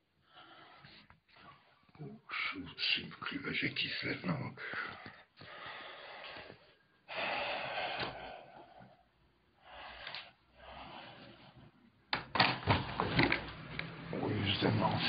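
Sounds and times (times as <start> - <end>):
person breathing: 0.2 - 1.9, 4.6 - 12.0.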